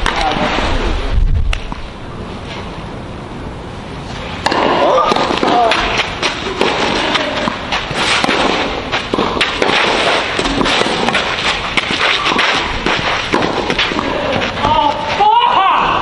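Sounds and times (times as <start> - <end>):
tennis balls struck by racquets: 4.4 - 15.2.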